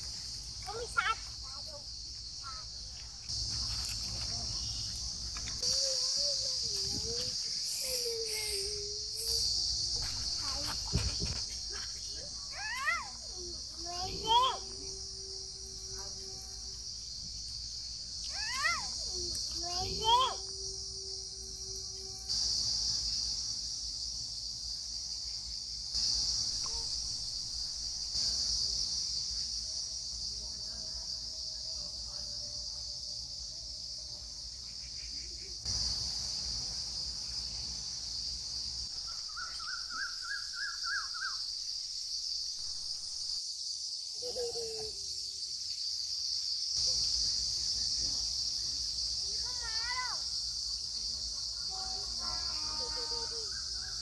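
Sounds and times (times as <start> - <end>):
insects buzzing: 0.0 - 54.0
bird calling: 39.0 - 41.4.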